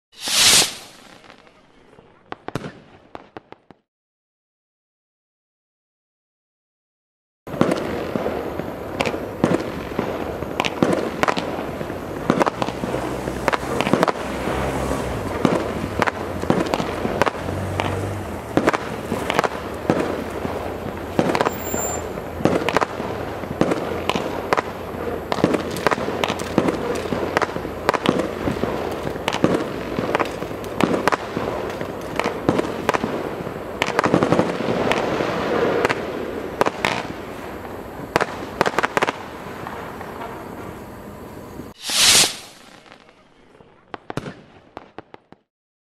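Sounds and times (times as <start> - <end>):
firework stars crackling: 0.1 - 3.9, 7.5 - 45.5
firework launch thumps and bangs: 9.0 - 37.2, 41.8 - 43.0.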